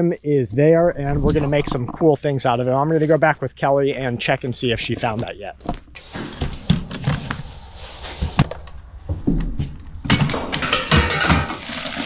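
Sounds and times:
tools clattering in plastic tote: 10.1 - 12.0.

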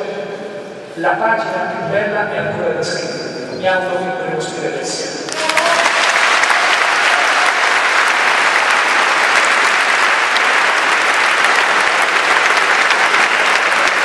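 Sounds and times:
audience applauding: 5.3 - 14.0.

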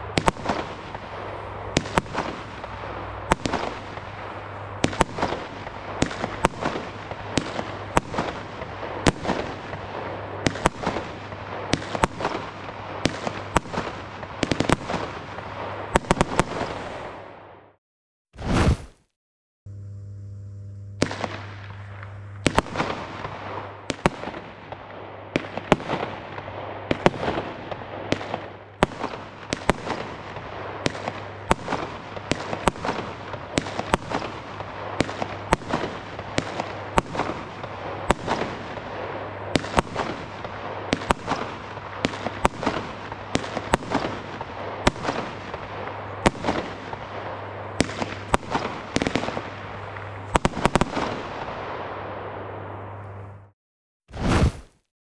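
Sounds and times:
firework shots banging: 0.0 - 9.8, 21.0 - 24.8
firework burst noise: 18.4 - 19.1, 54.1 - 54.9.

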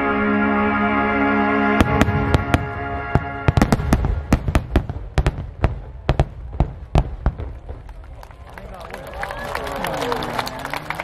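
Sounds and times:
music: 0.0 - 4.9.

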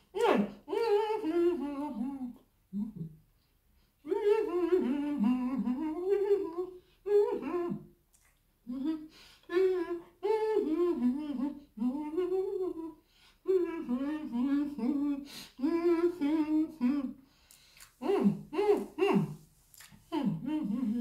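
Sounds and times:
woman humming: 0.1 - 3.2, 4.1 - 7.8, 8.7 - 17.2, 18.0 - 19.4, 20.1 - 21.0
person chewing: 17.5 - 18.0, 19.7 - 20.0.

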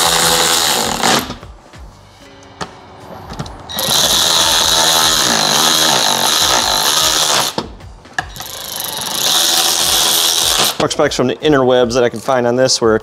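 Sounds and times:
cordless ratchet whirring: 3.7 - 7.6, 8.3 - 10.8.

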